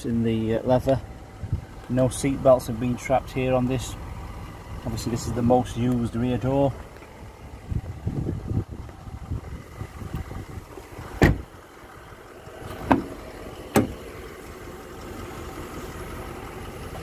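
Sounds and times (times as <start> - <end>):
wind noise on microphone: 1.4 - 1.7, 7.6 - 11.5
handling rumble on microphone: 4.9 - 11.6
car door shutting thud: 11.2 - 11.5, 12.7 - 14.1.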